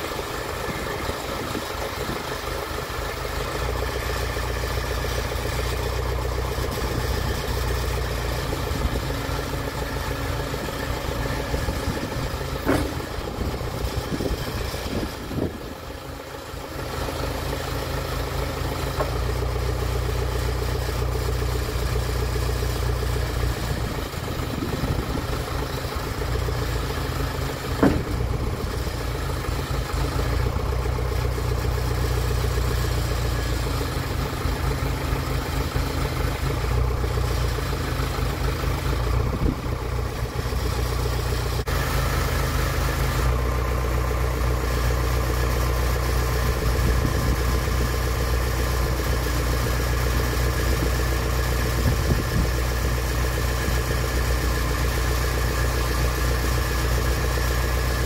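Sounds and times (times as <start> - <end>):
hydraulics working: 0.0 - 41.7
tractor engine running: 0.0 - 58.0
sharp knock: 12.6 - 13.2, 27.8 - 28.3.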